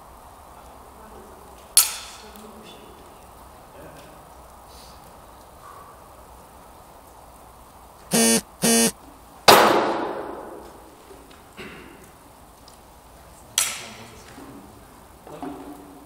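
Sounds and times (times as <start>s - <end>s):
short buzzing beeps: 8.1s - 9.0s.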